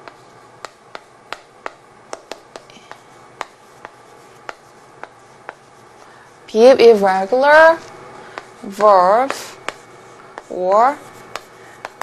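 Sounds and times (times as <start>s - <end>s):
chalk tapping on chalkboard: 0.0s - 6.1s, 8.3s - 12.0s.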